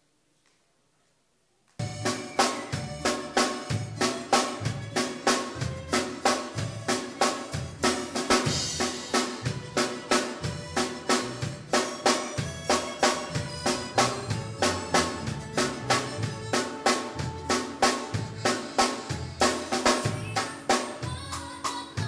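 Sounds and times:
bass guitar: 1.8 - 22.0
drum kit beat: 1.8 - 22.0
keyboard: 1.8 - 22.0.

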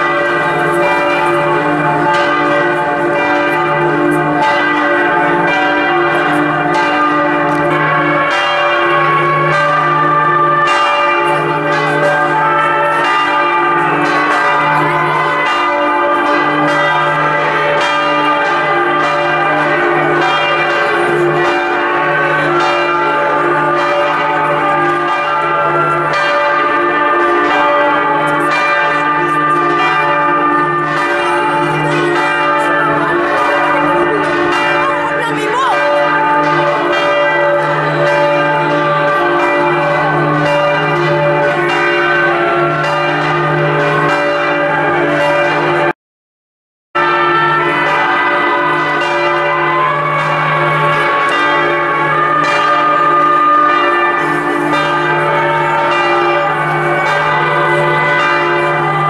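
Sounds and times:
deep bell: 0.0 - 45.9, 47.0 - 59.0
church bells pealing: 0.0 - 46.0, 47.0 - 59.0.

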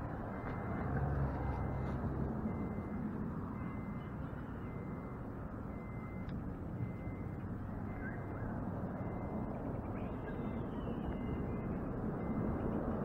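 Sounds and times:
low outdoor background noise: 0.0 - 13.0
faint bird chirps: 7.9 - 12.8.

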